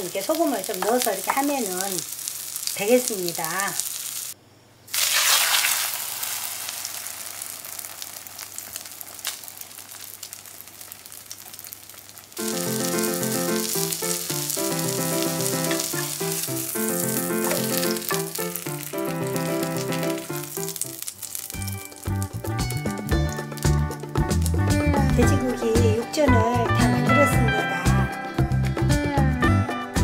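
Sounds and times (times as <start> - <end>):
meat sizzling in hot oil: 0.0 - 26.0
background music: 12.4 - 30.0.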